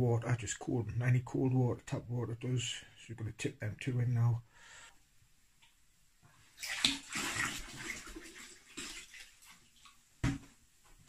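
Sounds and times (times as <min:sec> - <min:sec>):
water pouring into plastic bucket: 0:06.5 - 0:10.0.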